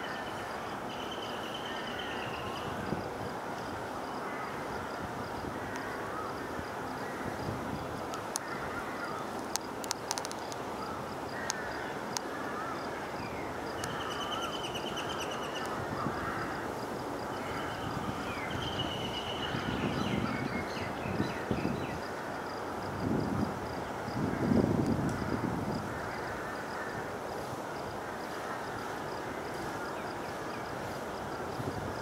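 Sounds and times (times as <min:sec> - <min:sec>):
birds calling and chattering: 0:08.2 - 0:16.6
sharp clicks: 0:09.4 - 0:10.6.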